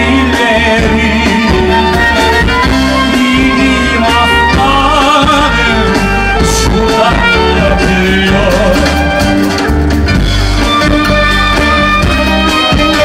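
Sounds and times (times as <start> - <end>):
man singing: 0.0 - 9.6
live band music: 0.0 - 13.0
violin: 0.0 - 13.0.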